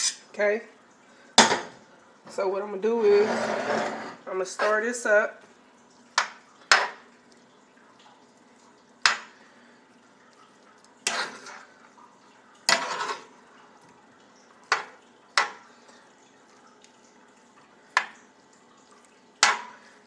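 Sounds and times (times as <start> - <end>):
metal spoon scraping a skillet: 0.0 - 0.2, 2.9 - 4.8, 11.0 - 11.7, 12.7 - 13.4.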